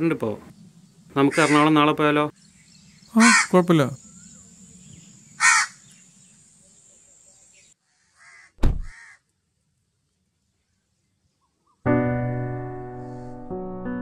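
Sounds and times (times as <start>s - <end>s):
crow cawing: 1.3s - 1.7s, 3.2s - 3.6s, 5.4s - 5.8s, 7.8s - 9.3s
car door slamming: 8.6s - 8.9s.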